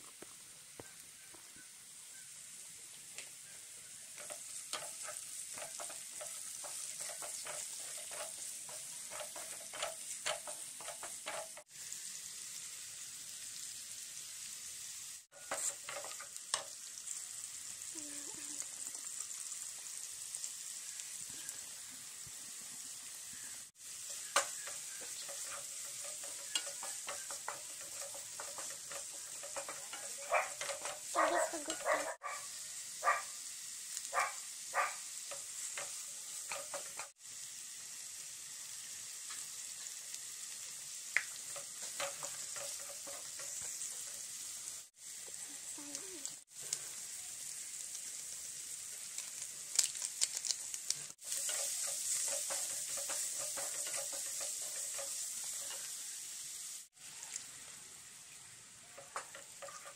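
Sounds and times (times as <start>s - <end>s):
vegetables sizzling in a wok: 0.0s - 59.9s
wooden spatula scraping a pan: 4.2s - 11.7s, 15.3s - 16.7s, 23.8s - 32.2s, 35.2s - 37.2s, 41.4s - 44.8s, 51.0s - 56.1s, 59.0s - 59.9s.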